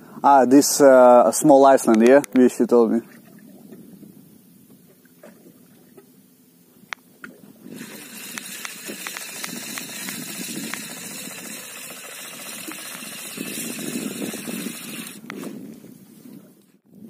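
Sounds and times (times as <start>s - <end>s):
boat engine running: 7.5s - 15.3s
rushing wind: 7.5s - 17.0s
clicks and rattles: 7.8s - 15.2s.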